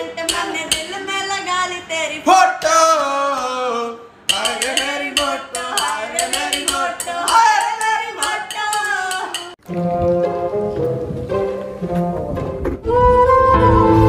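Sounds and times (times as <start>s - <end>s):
man and woman singing: 0.0s - 9.6s
hands drumming on steel pot: 4.3s - 9.6s.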